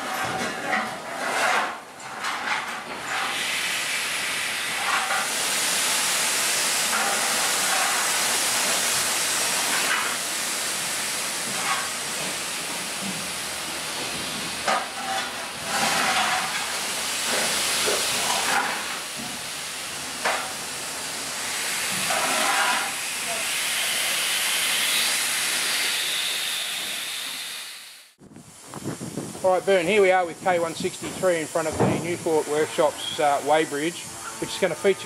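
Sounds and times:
steam locomotive hissing: 3.0s - 35.0s.

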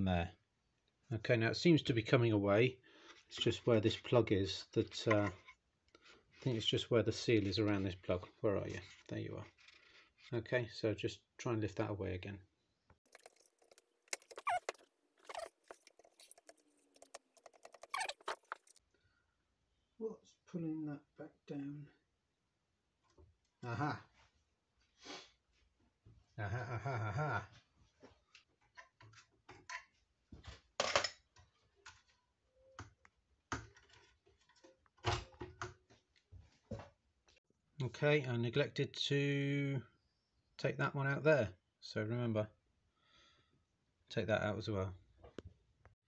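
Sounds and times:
screwdriver scraping metal casing: 13.2s - 18.8s
short falling squeaks: 14.1s - 16.4s, 17.4s - 18.8s.

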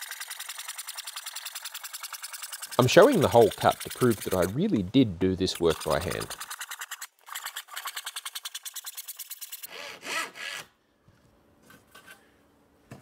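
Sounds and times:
handsaw cutting plywood: 2.8s - 4.6s, 5.5s - 8.2s, 9.6s - 10.7s.

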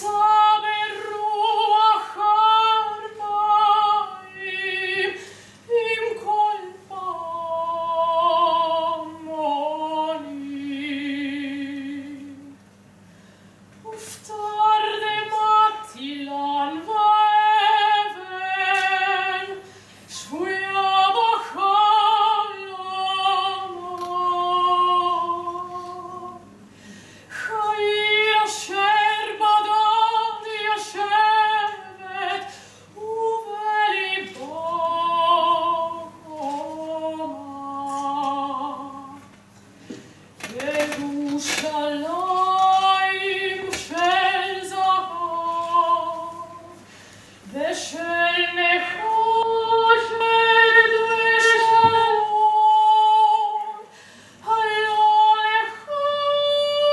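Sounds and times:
woman singing unaccompanied: 0.0s - 12.6s, 13.8s - 26.5s, 27.3s - 39.4s, 40.4s - 46.8s, 47.5s - 56.9s
singer breathing: 5.2s - 5.7s, 13.0s - 13.7s, 19.6s - 20.1s, 26.6s - 27.3s, 32.5s - 33.0s, 39.7s - 40.4s, 46.8s - 47.5s, 53.9s - 54.4s.

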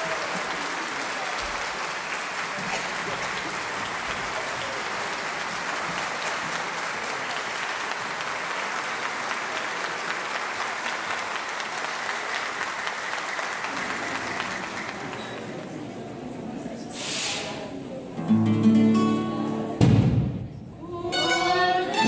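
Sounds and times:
audience applauding: 0.0s - 16.0s.

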